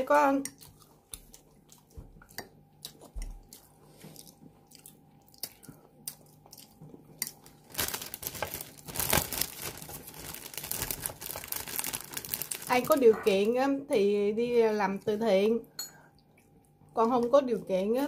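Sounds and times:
quiet chewing: 0:00.4 - 0:07.6
crusty bread crackling: 0:07.3 - 0:13.6.

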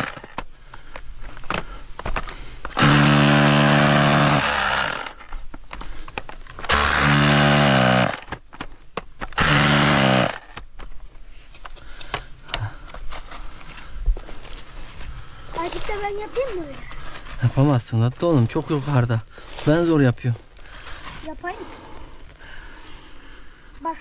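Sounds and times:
power tool motor running: 0:02.8 - 0:05.2, 0:06.7 - 0:08.3, 0:09.4 - 0:10.5
small knocks and scrapes: 0:10.5 - 0:19.0.

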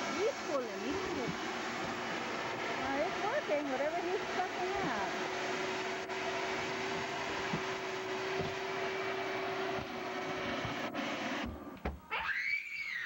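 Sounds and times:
vacuum humming: 0:00.0 - 0:12.0.

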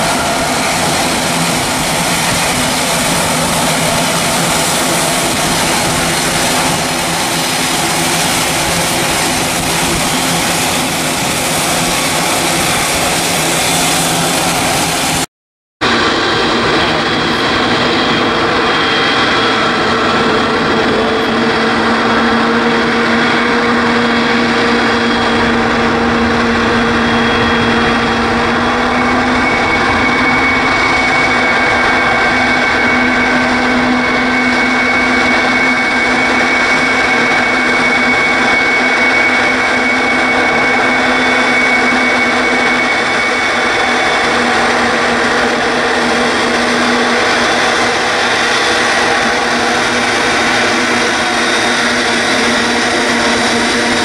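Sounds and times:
jet engines whining: 0:00.0 - 0:54.0.

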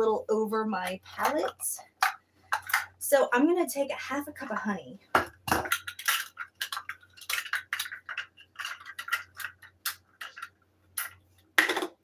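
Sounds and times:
measuring cups clicking together: 0:05.5 - 0:12.0.

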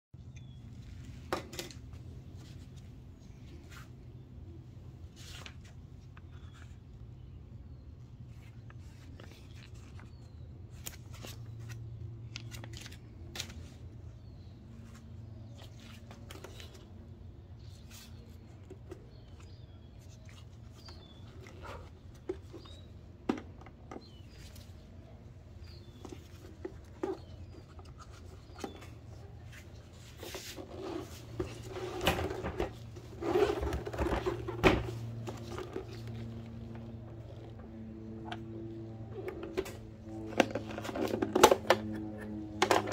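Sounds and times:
steady low hum: 0:00.2 - 0:42.9
paper rustling: 0:05.1 - 0:07.3, 0:08.2 - 0:13.9.

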